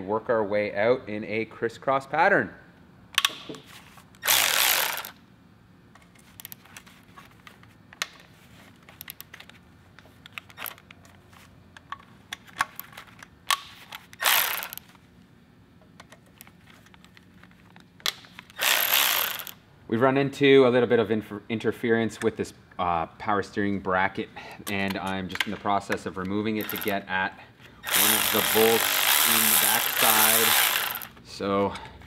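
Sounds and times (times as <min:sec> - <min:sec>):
cordless ratchet whirring: 0:04.2 - 0:05.2, 0:13.8 - 0:14.8, 0:18.4 - 0:19.6, 0:26.6 - 0:27.0, 0:27.8 - 0:31.2
ratchet and bolts clicking: 0:04.2 - 0:05.2, 0:11.8 - 0:14.8, 0:18.0 - 0:19.6, 0:26.6 - 0:27.0, 0:27.8 - 0:31.2.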